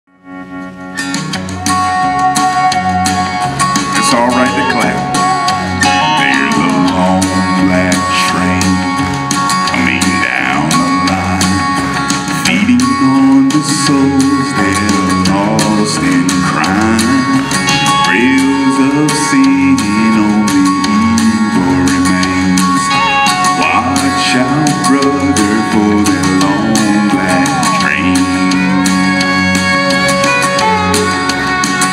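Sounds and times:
men's vocal group singing gospel: 5.8 - 9.0, 12.4 - 22.9, 23.6 - 28.6.

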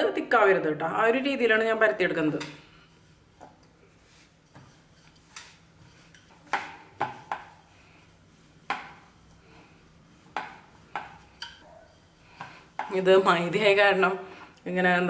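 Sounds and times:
rolling pin knocking on wooden board: 10.3 - 11.2.

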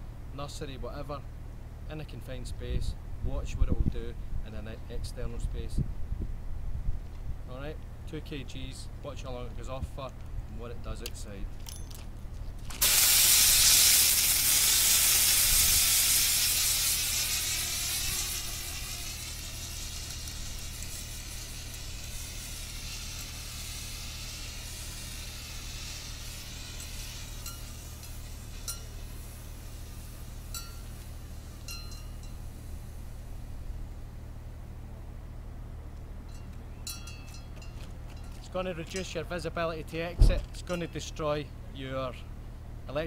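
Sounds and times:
fire extinguisher hissing: 12.7 - 31.7.

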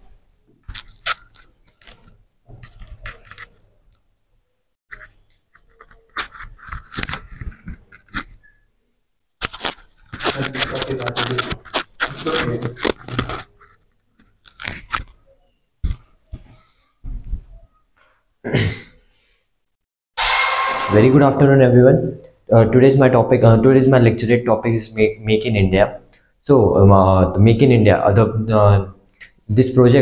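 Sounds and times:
fabric straps tearing open: 0.7 - 3.6, 9.4 - 15.2.

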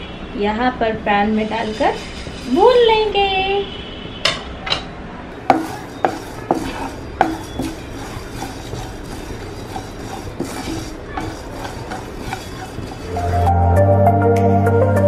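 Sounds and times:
wooden spatula scraping a pan: 1.0 - 3.4, 5.4 - 13.5
seeds rattling in a frying pan: 5.4 - 13.4.

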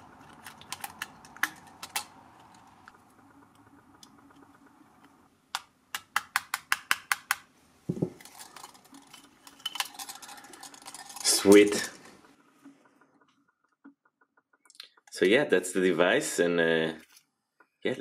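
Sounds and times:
small metal clicks and ticks: 0.1 - 7.4, 8.2 - 15.3.

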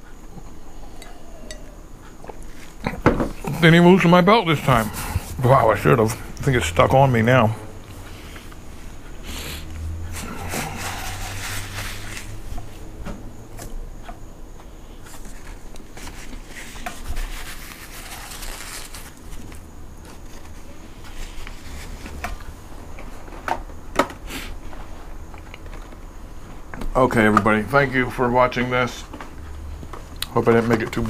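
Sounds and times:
paper napkin rustling: 10.1 - 12.9, 15.1 - 22.4.

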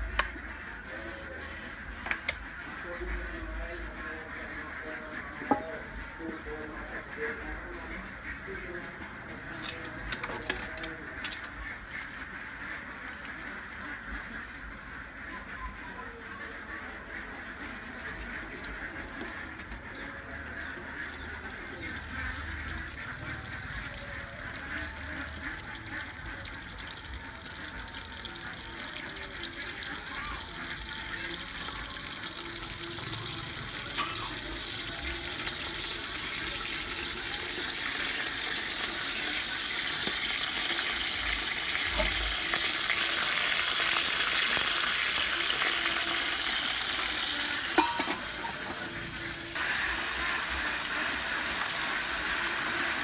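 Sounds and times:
pot of liquid hissing: 25.2 - 53.0.

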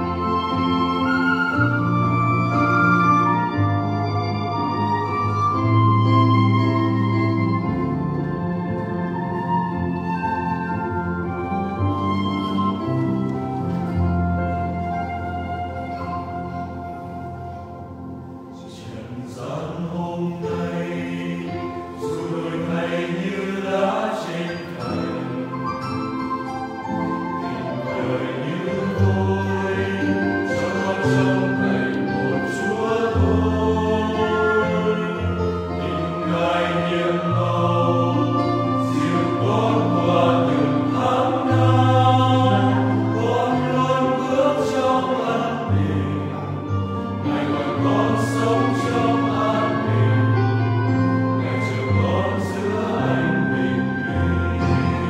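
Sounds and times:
choir singing a hymn: 0.0 - 55.0.

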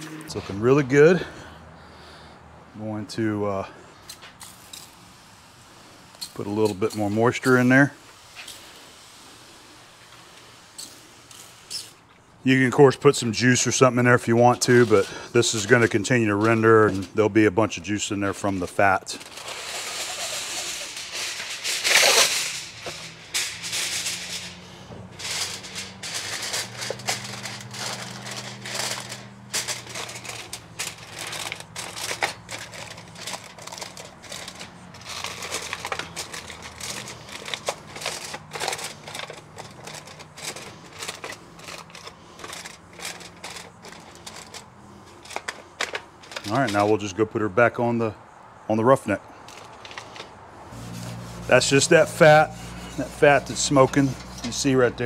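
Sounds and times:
foil crinkling: 17.9 - 47.1
aluminum foil tearing: 18.5 - 46.9.

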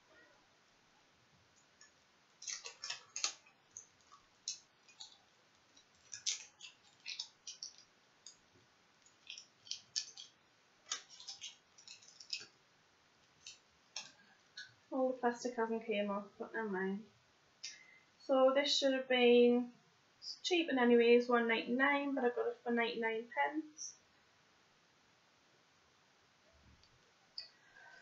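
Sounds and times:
plastic wrap crackling: 1.8 - 12.6, 13.2 - 14.7.

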